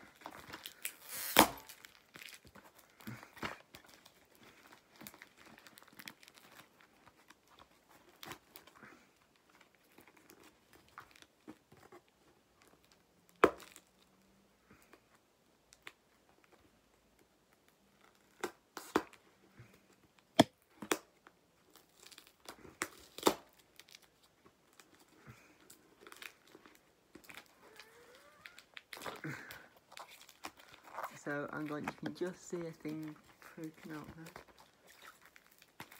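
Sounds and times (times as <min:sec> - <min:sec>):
cardboard rustling and crinkling: 0:00.0 - 0:14.1, 0:15.8 - 0:35.9
sharp snaps and knocks: 0:20.4 - 0:21.2.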